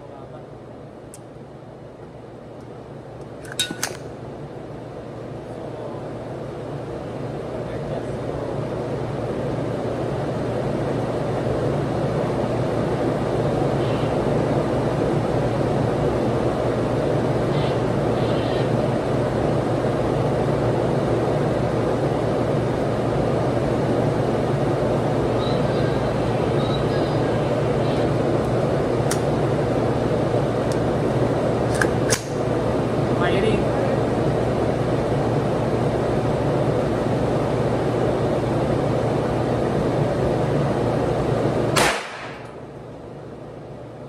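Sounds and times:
ventilation fans humming: 0.0 - 44.0
gunshot: 41.8 - 42.5.

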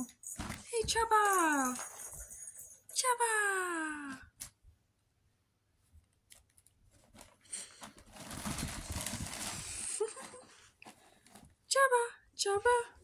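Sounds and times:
fabric tunnel rustling: 7.0 - 11.5.

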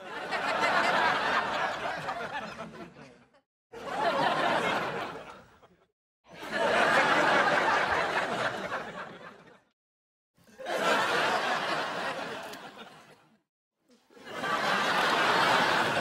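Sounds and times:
studio audience laughter: 0.0 - 9.8, 10.4 - 13.4, 14.0 - 16.0.

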